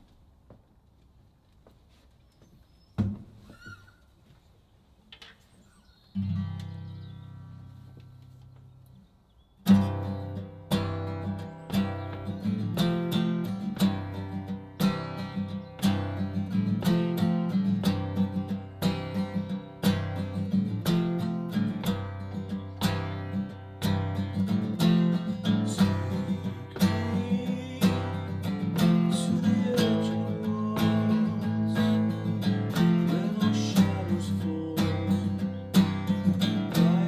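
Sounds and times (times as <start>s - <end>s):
acoustic guitar strumming: 6.2s - 8.1s, 9.6s - 37.0s.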